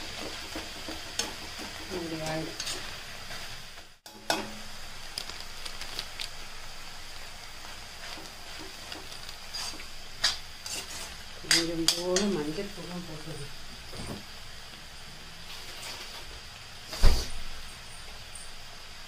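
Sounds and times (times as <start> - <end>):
steel spatula scraping a pan: 0.0 - 4.4, 8.0 - 12.4
food sizzling in a pan: 0.0 - 19.0.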